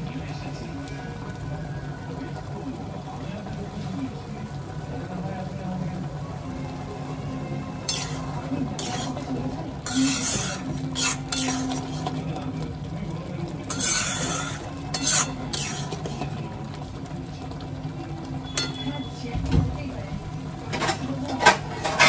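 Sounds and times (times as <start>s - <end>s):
spoon scraping and stirring pot: 7.8s - 12.4s, 13.6s - 16.4s, 18.4s - 19.1s, 20.7s - 22.0s.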